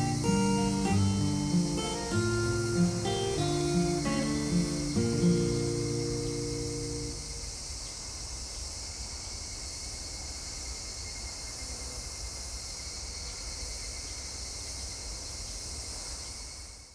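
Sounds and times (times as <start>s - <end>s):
insect chorus: 0.0s - 16.9s.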